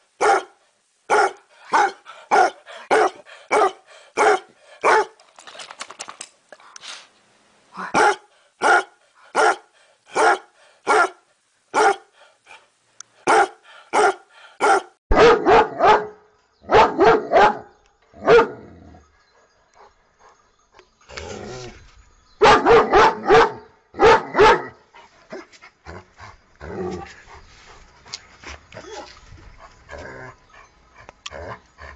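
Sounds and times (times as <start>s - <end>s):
dog barking in quick bursts: 0.2s - 5.2s, 8.0s - 12.1s, 13.2s - 18.5s, 22.4s - 24.7s
dog single barks: 13.3s - 17.6s, 22.4s - 24.7s.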